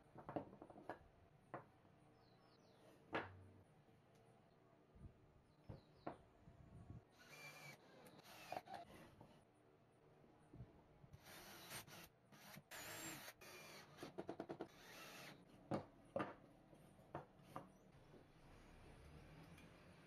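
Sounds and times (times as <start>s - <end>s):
drill driving screw into wood: 7.2s - 9.1s, 11.2s - 15.4s.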